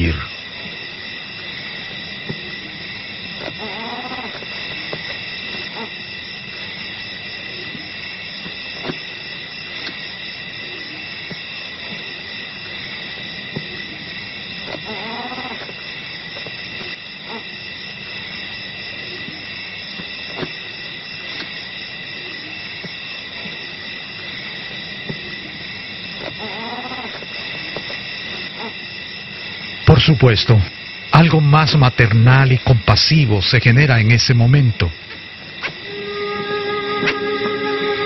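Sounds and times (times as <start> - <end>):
chorus of night insects: 0.0 - 38.0
animal calls rising and falling: 35.8 - 38.0.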